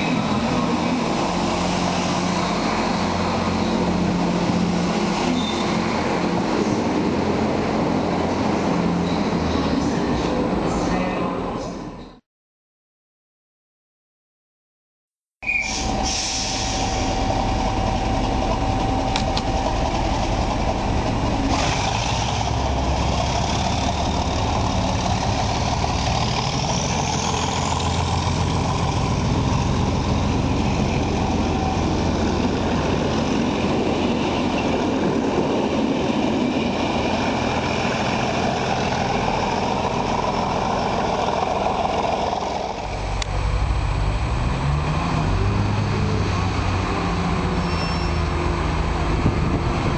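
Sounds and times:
diesel train engine running: 15.7 - 49.9.

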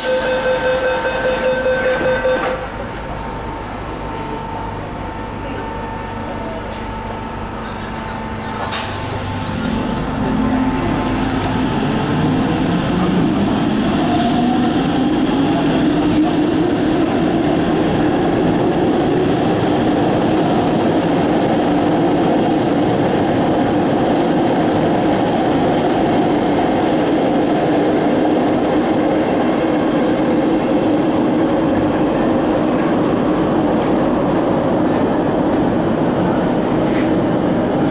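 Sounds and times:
train wheels rumbling on rails: 0.0 - 37.9.

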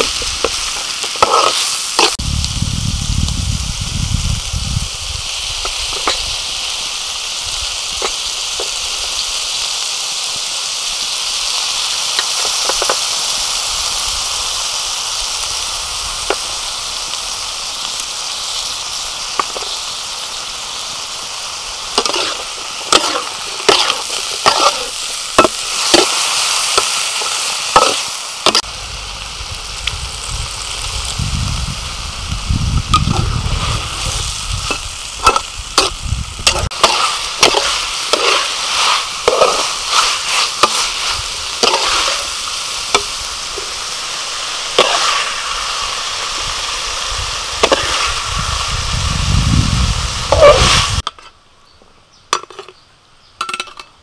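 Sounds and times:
metal spatula scraping a pan: 0.0 - 2.2, 21.9 - 28.6, 33.0 - 43.8, 44.7 - 45.4, 47.6 - 48.2, 50.3 - 51.3
stir-fry sizzling in a wok: 0.0 - 51.3.

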